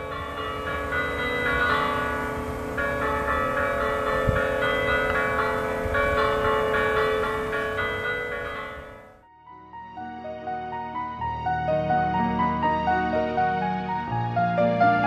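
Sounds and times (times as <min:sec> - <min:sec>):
church bells pealing: 0:00.0 - 0:09.3.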